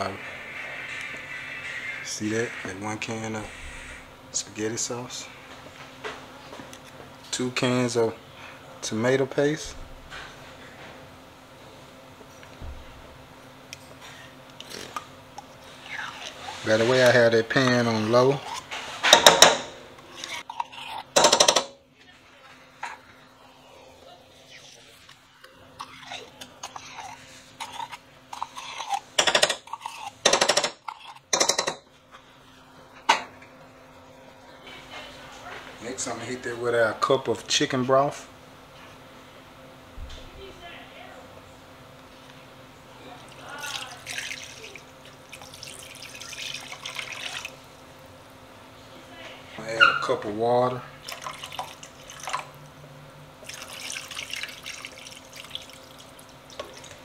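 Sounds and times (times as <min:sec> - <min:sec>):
water pouring into sauce: 0:43.3 - 0:47.6, 0:51.0 - 0:52.6, 0:53.4 - 0:57.0.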